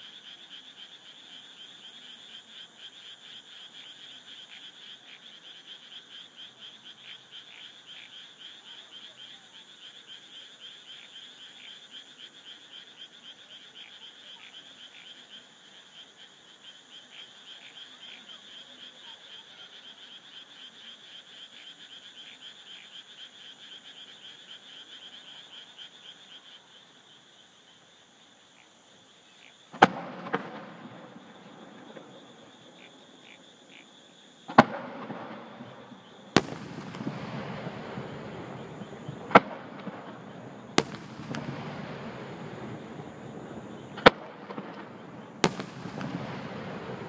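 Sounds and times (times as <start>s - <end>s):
frogs and insects trilling: 0.0s - 47.0s
firework launch bangs: 29.8s - 31.2s, 34.5s - 47.0s.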